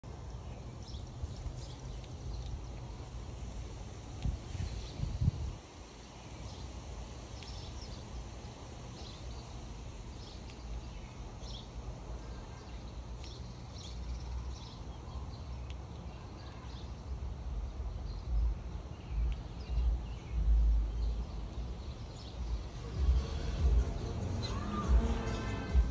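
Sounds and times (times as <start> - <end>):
steady low rumble: 0.0 - 6.0, 17.0 - 25.9
wind buffeting microphone: 4.0 - 5.7.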